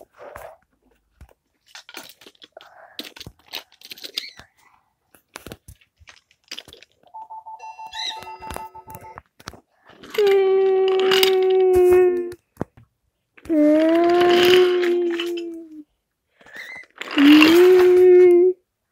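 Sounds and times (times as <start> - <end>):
toy trains clattering on wooden track: 10.0 - 12.3, 13.5 - 15.5.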